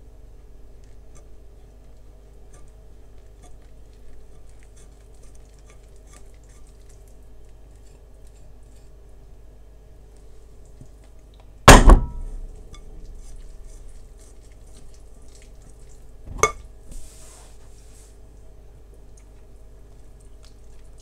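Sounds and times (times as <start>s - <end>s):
sharp knock: 11.7s - 12.3s
dishes clanking: 16.3s - 16.7s.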